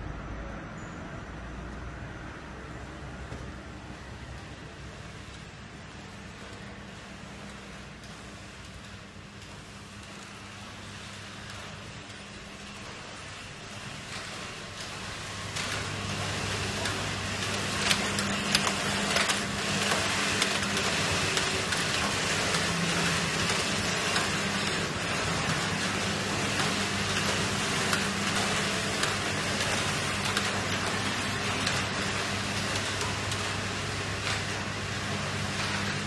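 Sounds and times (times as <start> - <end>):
knitting machines running: 1.3 - 36.0
machine clicks and clacks: 2.9 - 36.0.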